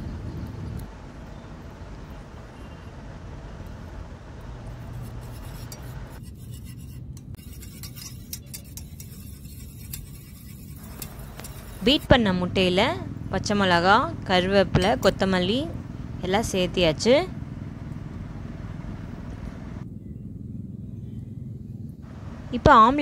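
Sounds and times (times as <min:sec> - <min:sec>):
steady low rumble: 0:00.0 - 0:23.0
wire whisk beating eggs: 0:06.6 - 0:12.2
whisk clicking against metal bowl: 0:07.3 - 0:12.1.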